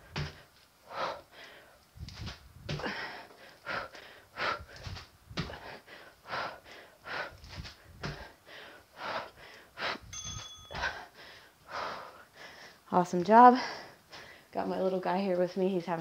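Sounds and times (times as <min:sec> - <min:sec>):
woman panting: 0:00.0 - 0:01.8, 0:02.7 - 0:10.1, 0:10.7 - 0:14.6
sneakers thudding on floor mat: 0:04.8 - 0:05.7.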